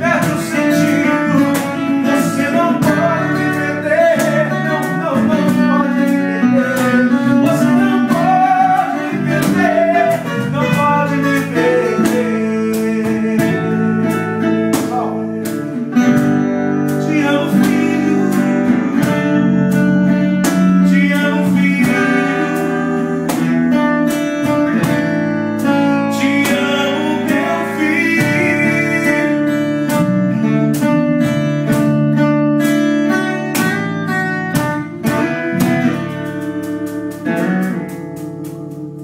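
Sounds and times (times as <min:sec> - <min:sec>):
man singing: 0:00.0 - 0:30.9, 0:34.6 - 0:36.4, 0:37.2 - 0:39.0
electric bass: 0:00.0 - 0:39.0
strummed acoustic guitar: 0:00.0 - 0:39.0.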